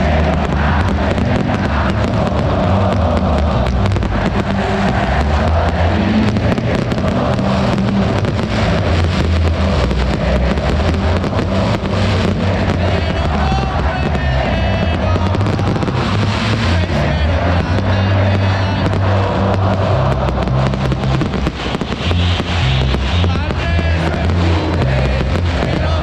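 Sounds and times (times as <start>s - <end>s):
fireworks crackling and popping: 0.0s - 26.0s
stadium crowd singing and cheering: 0.0s - 26.0s.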